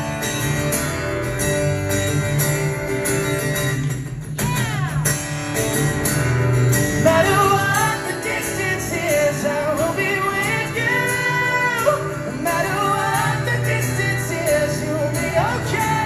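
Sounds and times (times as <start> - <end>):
acoustic guitar strumming: 0.0 - 16.0
person singing: 7.0 - 16.0.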